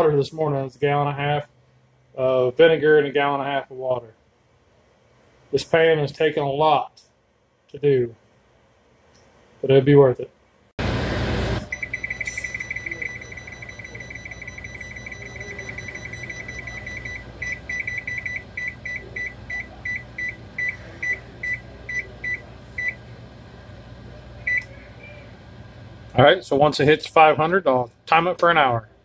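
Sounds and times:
control panel beeping: 0:11.6 - 0:23.0, 0:24.5 - 0:24.8.

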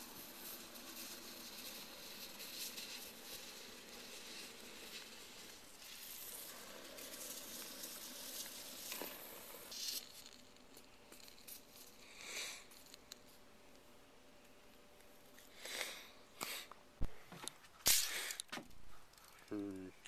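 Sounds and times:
spray foam can hissing: 0:00.0 - 0:13.4.

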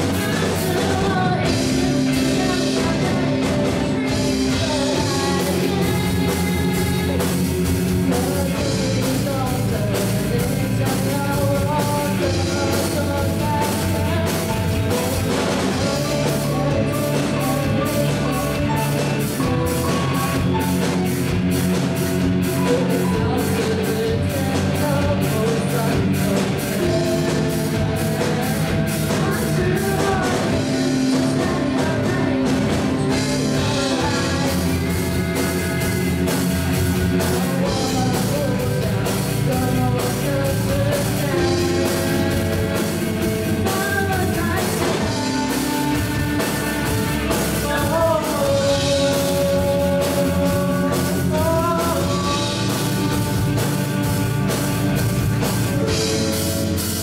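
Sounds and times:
woman singing: 0:00.0 - 0:21.6, 0:22.4 - 0:56.4
drum kit: 0:00.0 - 0:57.0
electric guitars: 0:00.0 - 0:57.0
keyboard: 0:00.0 - 0:57.0
man singing: 0:00.0 - 0:57.0.

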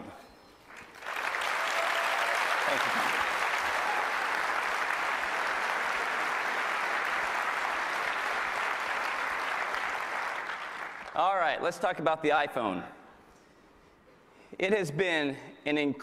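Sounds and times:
audience applauding: 0:00.7 - 0:11.3.

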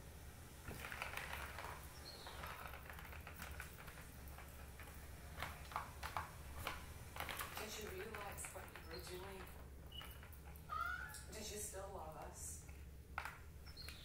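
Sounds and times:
paws clicking on plastic track: 0:00.7 - 0:11.2.

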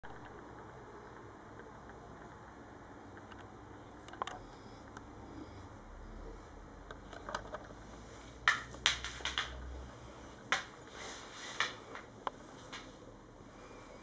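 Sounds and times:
dog claws clicking on floor: 0:08.4 - 0:09.7, 0:10.5 - 0:10.8, 0:11.4 - 0:12.1.

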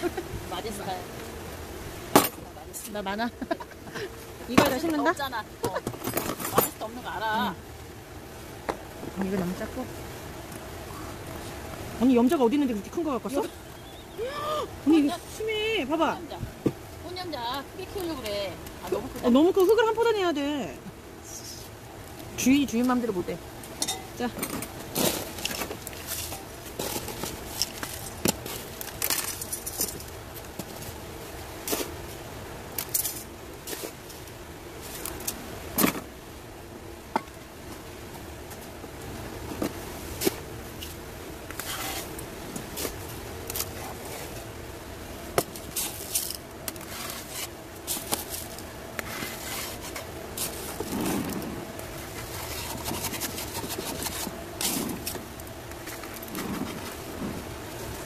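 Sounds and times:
potting mix scraping ceramic pot: 0:52.1 - 0:55.1.

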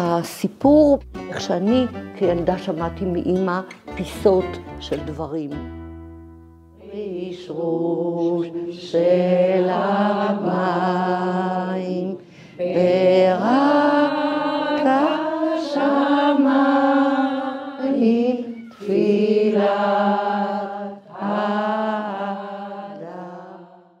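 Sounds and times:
women singing a slow chant: 0:06.8 - 0:24.0.

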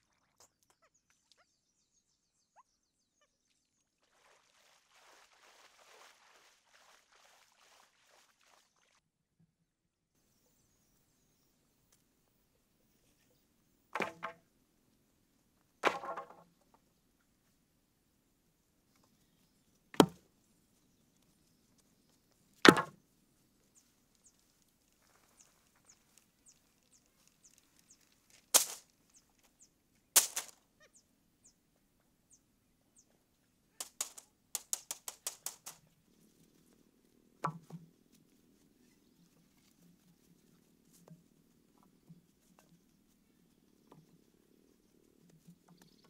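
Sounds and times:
poles dropped onto ground: 0:14.0 - 0:14.4, 0:15.8 - 0:16.5, 0:20.0 - 0:20.2, 0:22.6 - 0:23.0, 0:28.3 - 0:28.9, 0:30.2 - 0:30.6, 0:33.8 - 0:35.8
poles rattling together: 0:28.6 - 0:28.8, 0:30.2 - 0:30.6, 0:33.8 - 0:35.8.

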